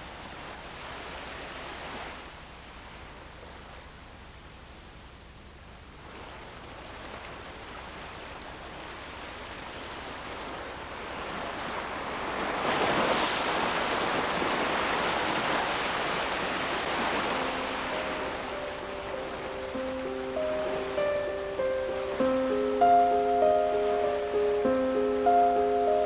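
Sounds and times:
music: 17.2s - 26.0s.

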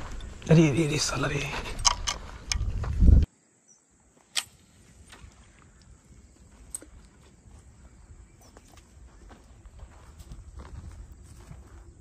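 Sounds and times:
wind rumble: 0.0s - 3.3s, 7.0s - 12.0s.

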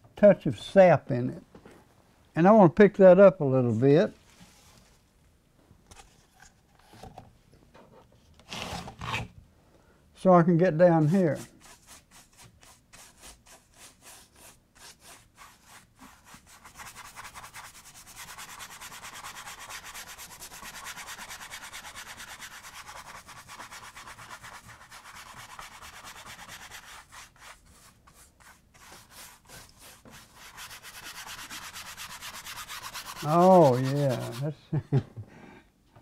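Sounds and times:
paintbrush scrubbing on canvas: 11.0s - 34.5s.

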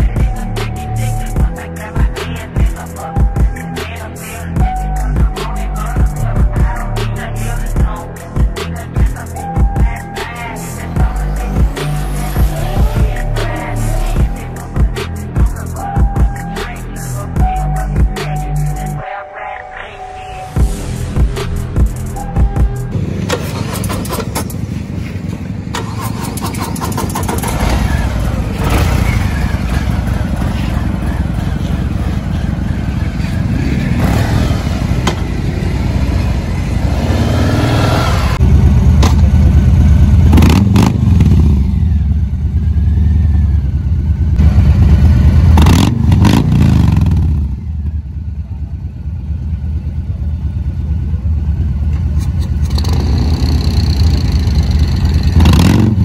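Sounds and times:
motorcycle engines revving: 22.9s - 56.0s.

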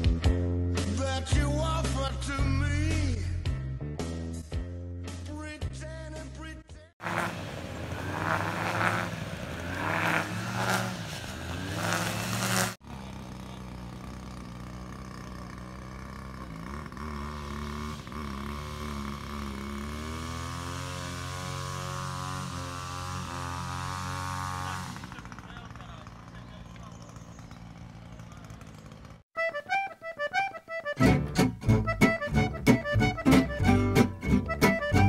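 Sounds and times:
small petrol engine running: 7.0s - 29.8s.

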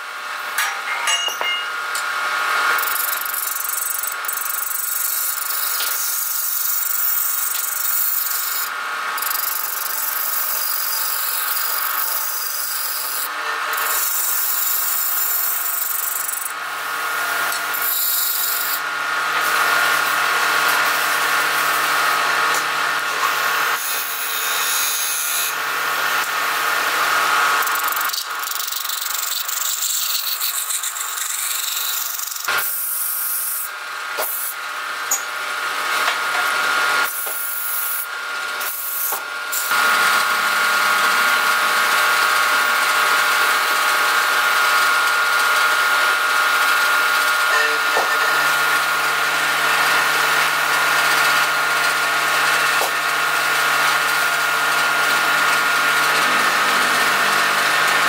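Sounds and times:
wood lathe humming: 2.2s - 33.6s, 46.6s - 58.0s.

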